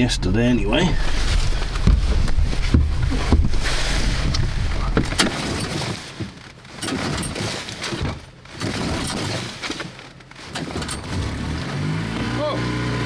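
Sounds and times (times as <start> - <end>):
outboard motor turning over: 6.8 - 13.0.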